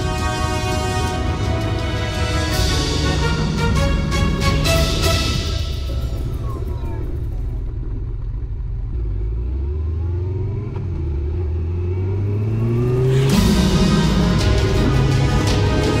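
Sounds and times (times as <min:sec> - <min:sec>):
motorcycle engine accelerating: 0:05.8 - 0:16.0.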